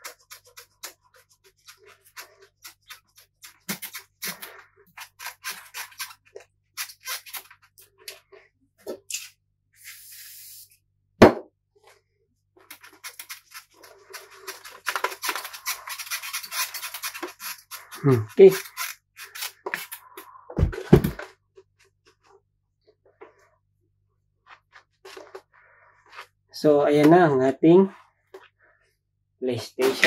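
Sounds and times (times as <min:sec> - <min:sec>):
hand rubbing plastic cover: 0:12.6 - 0:21.3.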